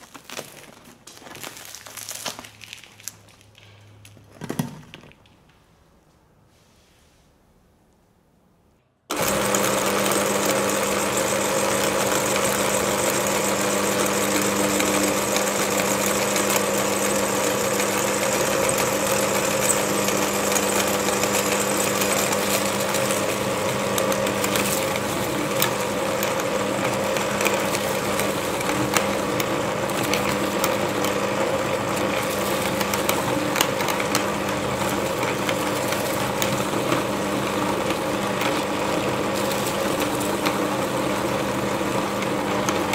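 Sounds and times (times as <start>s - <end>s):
meat grinder motor humming: 9.1s - 42.9s.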